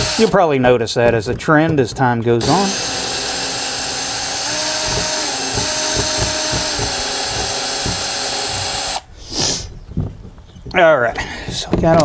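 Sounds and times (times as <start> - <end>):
power drill running: 0.0 - 0.4, 2.4 - 9.1.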